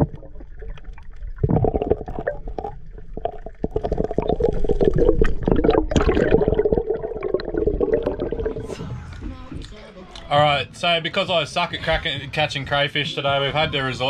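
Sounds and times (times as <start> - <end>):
muffled water rushing underwater: 0.0 - 9.8.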